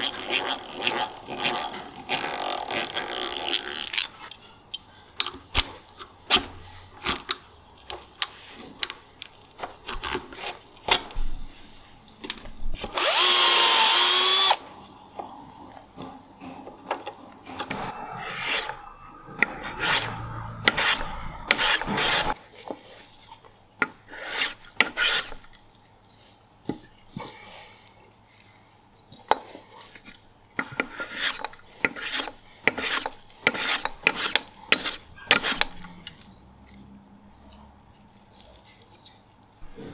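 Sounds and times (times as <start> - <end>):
cordless power drill whine: 12.9 - 14.6
hand drill boring into wood: 12.9 - 14.6.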